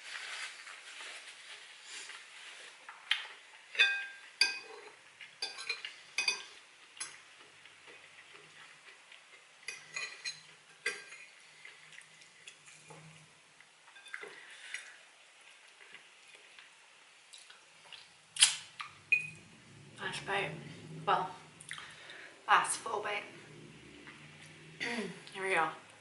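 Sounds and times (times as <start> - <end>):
fork clinking on ceramic plate: 3.8 - 6.5, 9.7 - 11.3.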